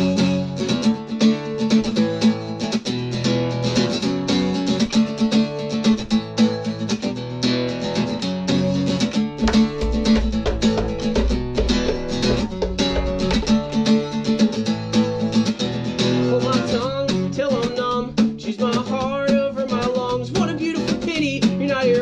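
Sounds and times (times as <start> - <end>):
acoustic guitar strumming: 0.0 - 22.0
person singing: 16.1 - 22.0.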